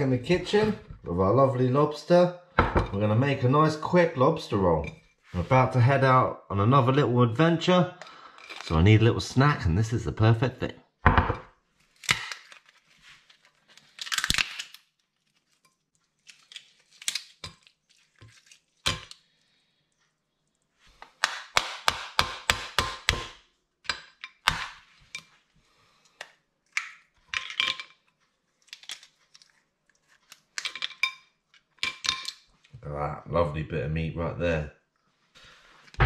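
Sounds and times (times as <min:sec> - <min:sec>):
lobster shell cracking: 0:11.9 - 0:12.8, 0:13.4 - 0:19.3, 0:26.1 - 0:28.0, 0:28.6 - 0:31.0.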